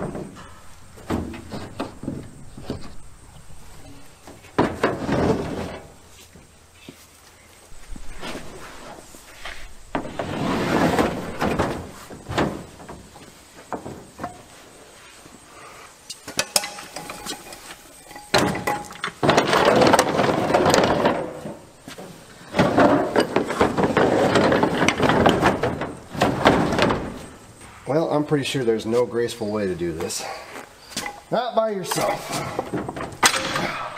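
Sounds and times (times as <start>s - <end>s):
knocks and clunks: 0.0s - 6.5s, 7.7s - 14.5s, 16.2s - 27.4s, 31.9s - 33.9s
heavy object scraping on plastic: 8.1s - 12.4s.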